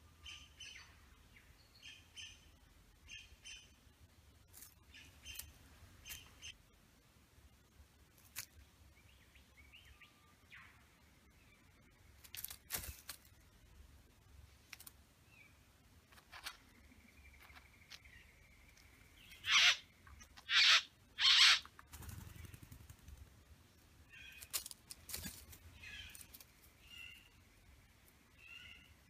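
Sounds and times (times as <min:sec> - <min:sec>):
sharp bird clicks: 0:04.9 - 0:06.6
soft buzzy bird calls: 0:16.2 - 0:23.0
harsh hissing bird calls: 0:19.2 - 0:21.6.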